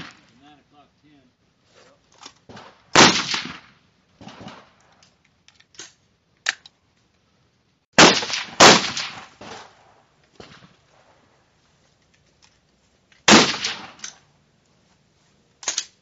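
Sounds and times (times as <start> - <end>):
rifle shots echoing: 0.0 - 0.3, 2.5 - 4.8, 8.0 - 11.2, 13.2 - 14.2.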